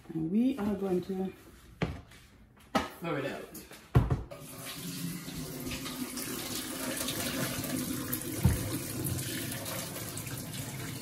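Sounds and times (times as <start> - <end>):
water splashing into metal sink: 4.3 - 11.0
dull thump: 8.4 - 8.8.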